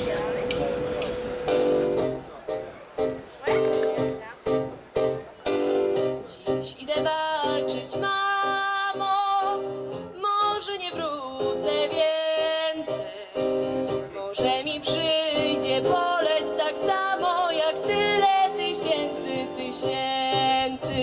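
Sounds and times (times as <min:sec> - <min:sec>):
woman singing into a microphone: 0:06.2 - 0:21.0.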